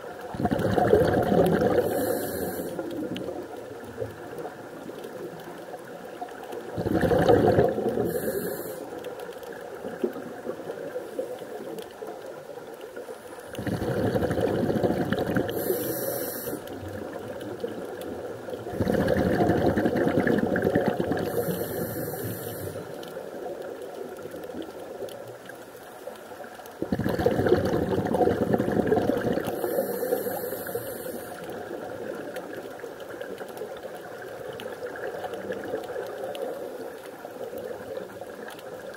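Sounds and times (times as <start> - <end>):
bubbling exhaust: 0.3 - 3.2, 6.8 - 8.7, 13.6 - 17.2, 18.6 - 22.9, 26.8 - 31.9
diver breathing through regulator: 1.5 - 3.0, 6.9 - 8.9, 15.4 - 16.8, 21.2 - 23.0, 29.4 - 31.6.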